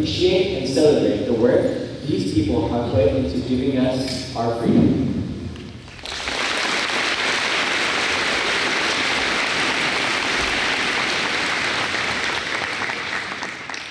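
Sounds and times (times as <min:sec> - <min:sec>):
audience applauding: 0:05.9 - 0:13.9.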